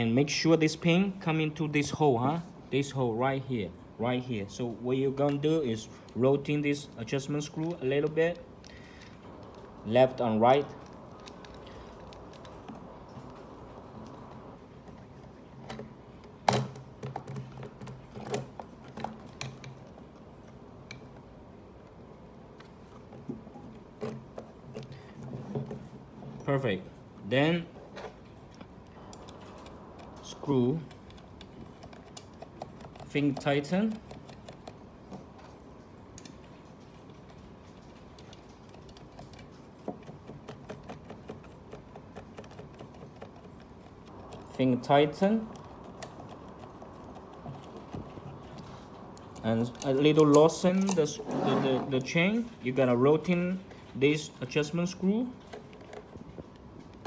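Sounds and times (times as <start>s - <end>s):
fingers turning plastic nuts clicking: 28.5s - 35.4s, 38.2s - 44.6s.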